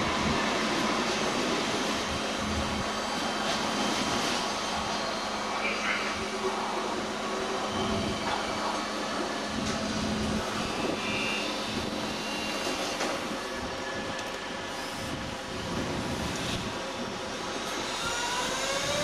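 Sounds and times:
train rolling into station: 0:00.0 - 0:19.0
brief high squeal: 0:10.6 - 0:11.6.

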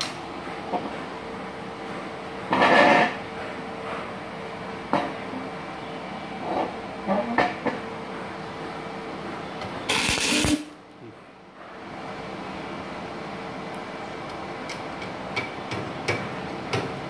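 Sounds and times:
welding arc crackling: 0:09.9 - 0:10.8.

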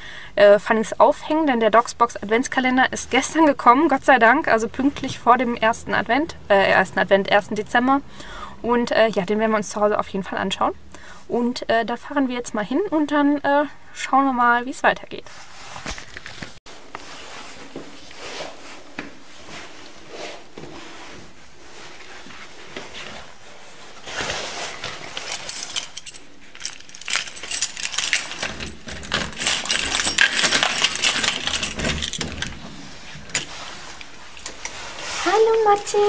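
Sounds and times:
soft footsteps: 0:15.4 - 0:25.5
keys jangling at door lock: 0:24.9 - 0:32.6, 0:33.2 - 0:34.7.

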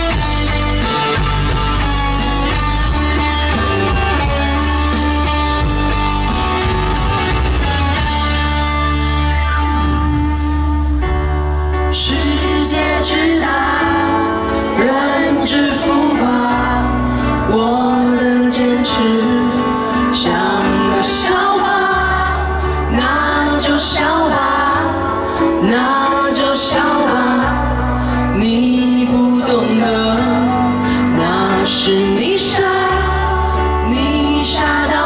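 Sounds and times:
deep bass notes: 0:00.0 - 0:19.7
band accompaniment: 0:00.0 - 0:35.0
woman singing slow pop song: 0:11.7 - 0:35.0.

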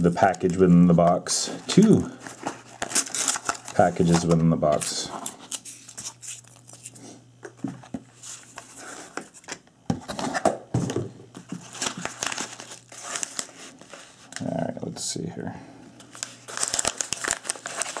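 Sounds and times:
padded mailer crinkling: 0:00.1 - 0:06.9, 0:11.5 - 0:14.5, 0:16.1 - 0:18.0
cardboard and paper rustling: 0:00.1 - 0:07.0, 0:07.6 - 0:14.5, 0:16.0 - 0:18.0.

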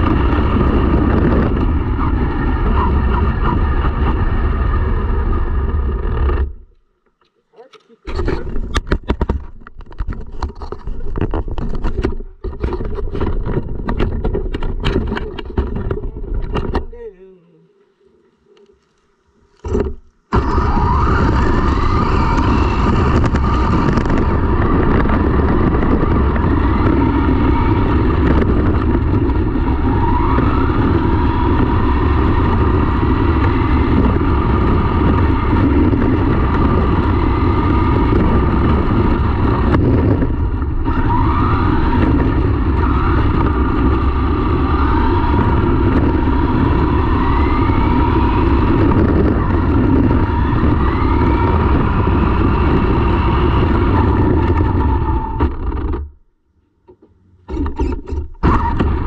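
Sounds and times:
tyre and chassis rumble: 0:00.0 - 0:17.2, 0:19.6 - 0:59.0
electric motor whine: 0:18.4 - 0:56.1.

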